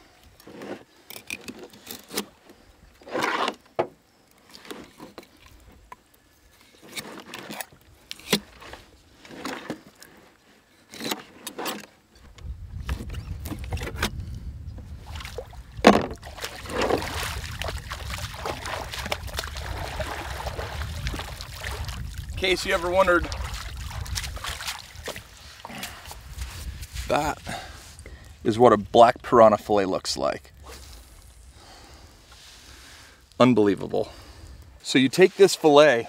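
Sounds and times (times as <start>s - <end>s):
knife cutting and scraping fish: 6.6s - 11.9s.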